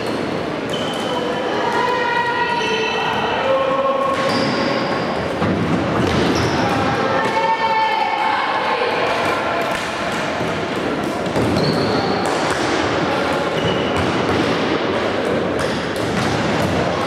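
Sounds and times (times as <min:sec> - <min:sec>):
shoe squeaks: 0:00.0 - 0:01.5, 0:04.2 - 0:05.2, 0:11.5 - 0:12.2, 0:13.6 - 0:14.0.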